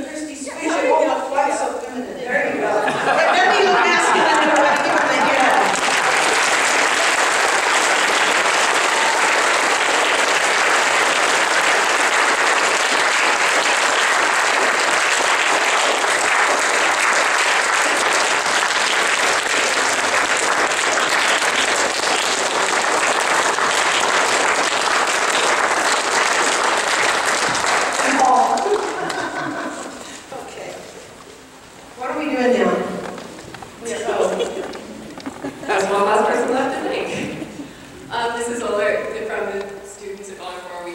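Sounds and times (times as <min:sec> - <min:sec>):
audience applause: 0:03.2 - 0:30.2.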